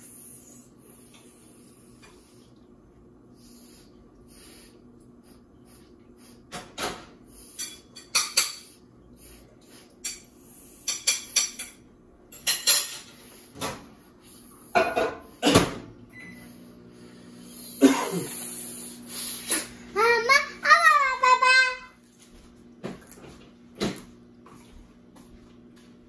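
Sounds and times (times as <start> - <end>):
dishes and utensils clattering: 6.6 - 8.8, 10.0 - 13.9, 14.7 - 15.9.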